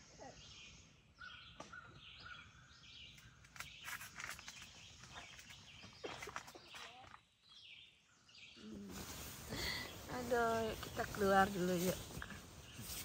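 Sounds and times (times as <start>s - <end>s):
faint birdsong: 0.0s - 13.0s
rustling and handling noise: 3.2s - 7.2s, 8.8s - 13.0s.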